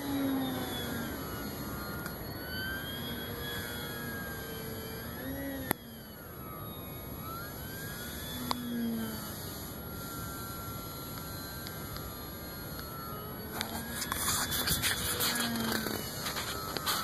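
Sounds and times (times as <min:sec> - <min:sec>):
model plane motor whining: 0:00.0 - 0:17.0
steady hiss: 0:07.3 - 0:17.0.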